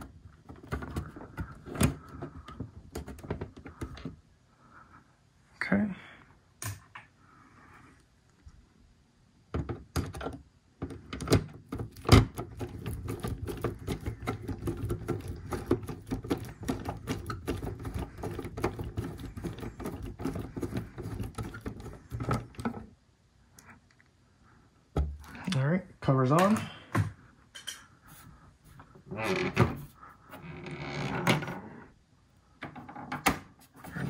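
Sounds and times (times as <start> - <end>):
cover knocking: 10.8 - 22.8.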